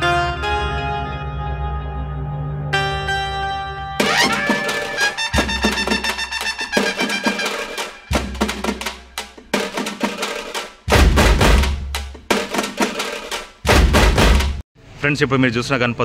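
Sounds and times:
pitched melody: 2.7 - 9.5
fast dense drum strokes: 4.3 - 14.6
deep bass hits: 10.9 - 12.3, 13.7 - 14.6.

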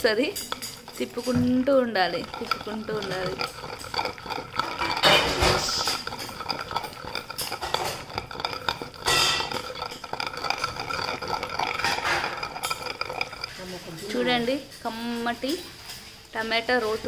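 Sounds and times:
wooden pestle grinding in stone mortar: 0.0 - 17.0.

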